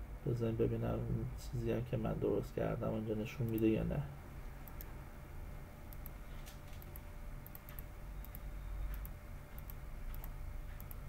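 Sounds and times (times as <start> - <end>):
low steady hum: 0.0 - 11.0
computer mouse clicks: 4.6 - 5.0, 5.9 - 11.0.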